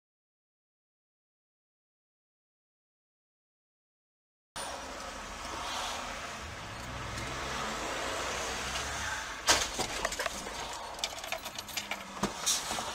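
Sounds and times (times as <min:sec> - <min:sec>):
car engine and road noise: 0:04.6 - 0:12.9
loud car crash: 0:08.8 - 0:10.6.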